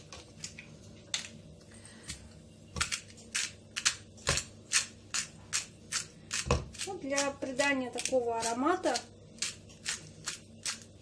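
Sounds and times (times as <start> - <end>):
spice grinder grinding: 2.8 - 11.0.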